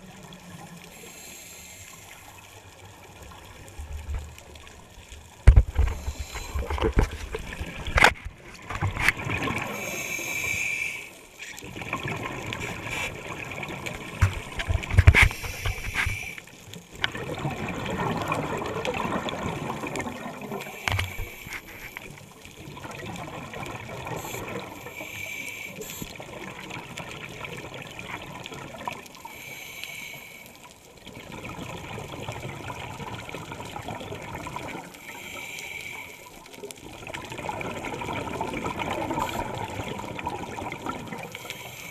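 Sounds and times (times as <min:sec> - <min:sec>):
regulator inhalation hiss: 0:00.9 - 0:02.3, 0:06.0 - 0:06.7, 0:09.7 - 0:11.5, 0:15.2 - 0:16.5, 0:20.6 - 0:22.1, 0:24.2 - 0:26.1, 0:29.2 - 0:30.7, 0:35.0 - 0:36.4, 0:41.4 - 0:41.9
exhaled air bubbling: 0:03.2 - 0:10.3, 0:11.6 - 0:24.8, 0:31.0 - 0:35.2, 0:36.5 - 0:41.9.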